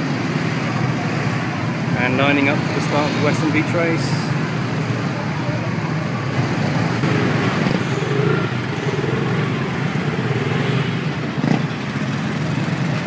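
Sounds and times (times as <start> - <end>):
mopeds and motorcycles running: 0.0 - 13.0.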